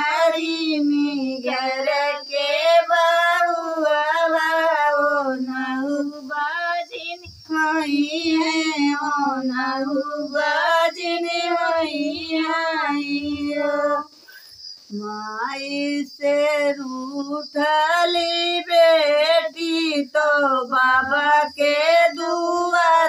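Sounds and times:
women singing unaccompanied: 0.0 - 23.0.

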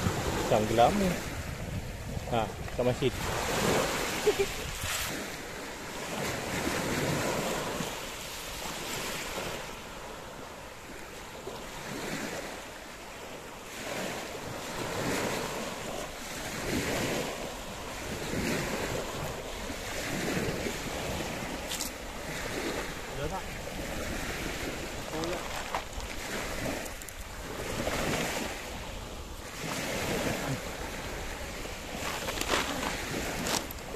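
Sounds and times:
wind buffeting microphone: 0.0 - 10.1
small waves washing ashore: 0.0 - 33.9.

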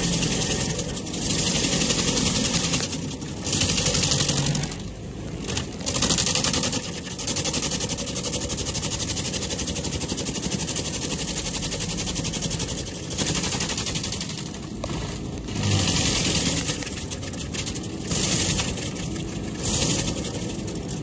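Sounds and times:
stump grinder grinding wood: 0.0 - 21.0.

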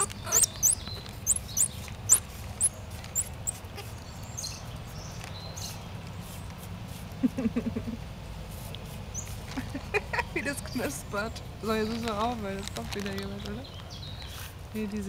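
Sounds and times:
monkeys chirping: 0.0 - 5.8.

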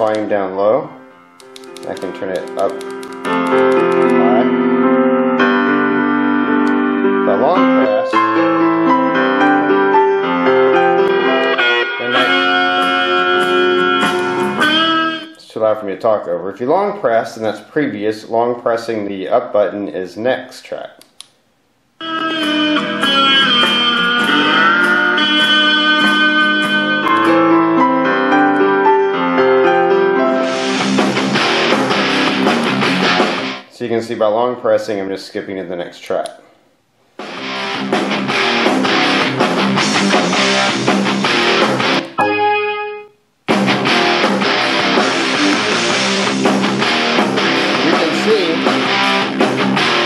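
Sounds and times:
keyboard melody on small speaker: 0.7 - 15.4, 22.0 - 32.4, 41.8 - 43.2.

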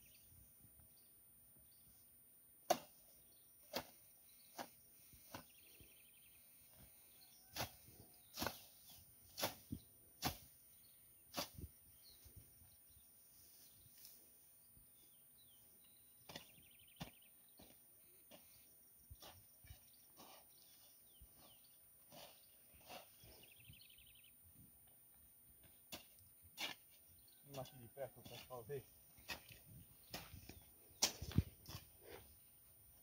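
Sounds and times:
hoe chopping into soil: 2.6 - 5.5, 7.5 - 10.6, 11.3 - 11.7, 29.2 - 31.9.

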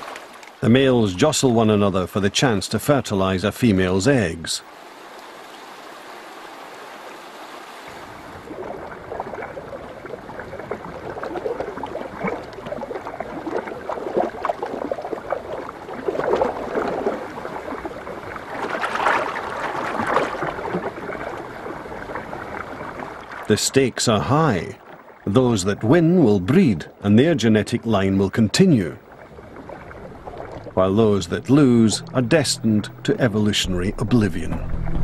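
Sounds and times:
river water rushing: 4.6 - 23.5, 29.0 - 35.0
fish thrashing and splashing: 8.5 - 23.5.

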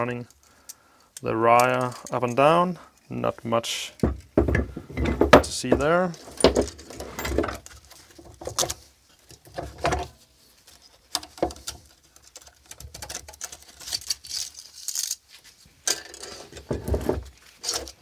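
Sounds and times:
plastic parts clicking and rattling on wood: 4.0 - 15.2, 15.8 - 18.0.

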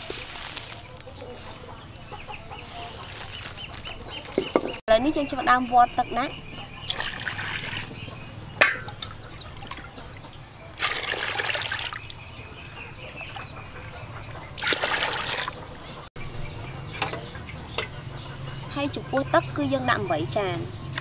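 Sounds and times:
water poured into a metal pot: 6.9 - 7.9, 10.8 - 12.2, 14.6 - 15.6.

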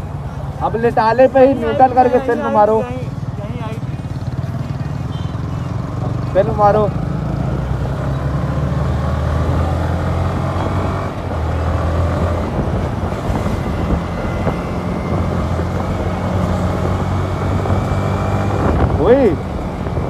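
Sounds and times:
road noise: 0.0 - 20.0
motorcycle engine running: 2.7 - 8.7.

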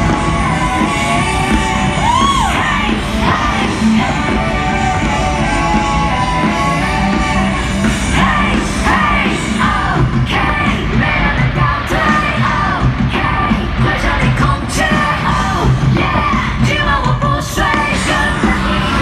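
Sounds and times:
loud music: 0.0 - 19.0
voices yelling and whooping: 0.4 - 3.0.

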